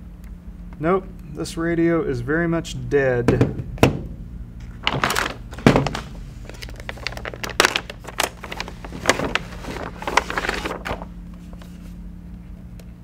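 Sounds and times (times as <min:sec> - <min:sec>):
metallized bag crinkling: 0:04.7 - 0:12.0.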